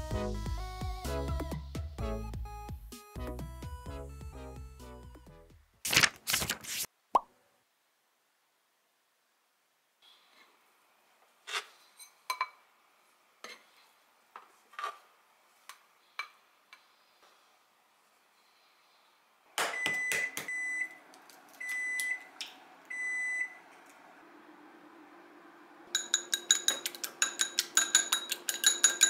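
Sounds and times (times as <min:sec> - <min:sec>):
electronic appliance beeps: 0:19.7 - 0:21.0, 0:21.6 - 0:23.6.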